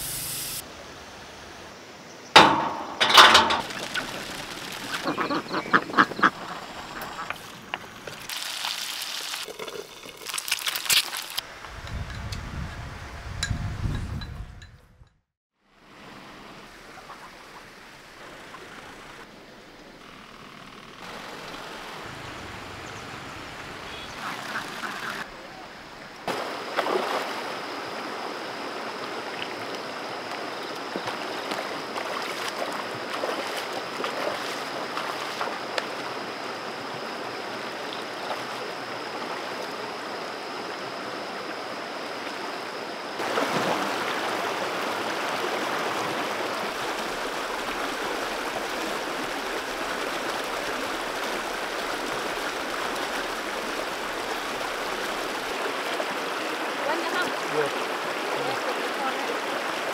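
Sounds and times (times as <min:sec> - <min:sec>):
wading splashes: 0:02.4 - 0:11.4, 0:26.2 - 0:40.0, 0:43.2 - 0:59.9
stream rushing over stones: 0:02.4 - 0:11.7, 0:26.0 - 0:59.9.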